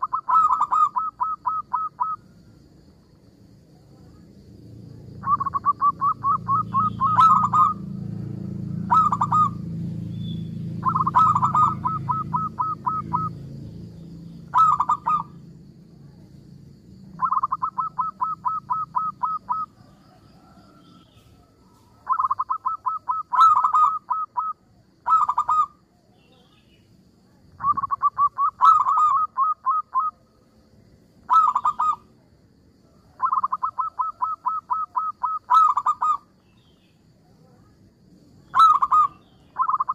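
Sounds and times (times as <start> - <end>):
dove cooing trills: 0.0 - 2.4, 5.2 - 13.6, 14.4 - 15.5, 17.1 - 25.9, 27.5 - 30.3, 31.2 - 32.2, 33.0 - 36.4, 38.4 - 39.9
low steady hum: 0.0 - 22.2.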